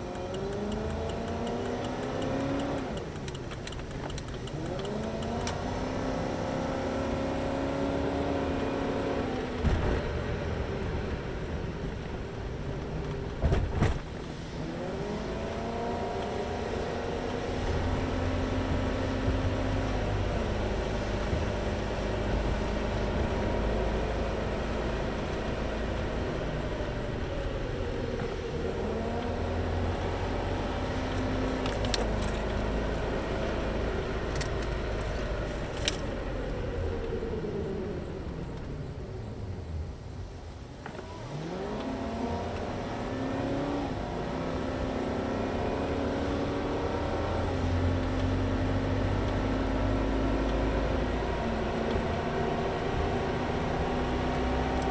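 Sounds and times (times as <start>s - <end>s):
turn signal ticking: 0.0s - 5.6s
car engine accelerating: 0.0s - 54.9s
road rumble: 0.0s - 54.9s.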